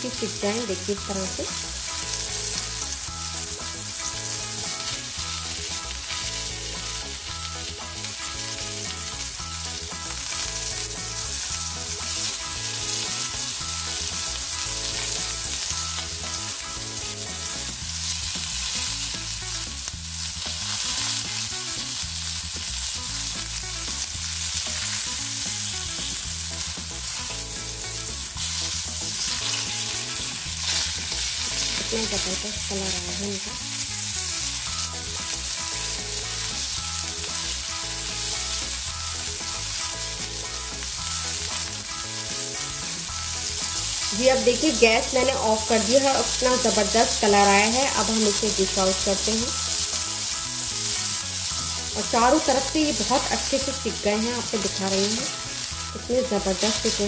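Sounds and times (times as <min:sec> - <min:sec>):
food sizzling in hot oil: 0:00.0 - 0:57.0
spatula scraping a pan: 0:24.5 - 0:38.5.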